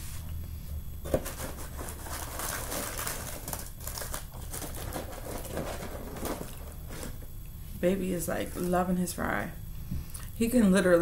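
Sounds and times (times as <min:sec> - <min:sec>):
paper wrapper crinkling: 0:01.2 - 0:07.2.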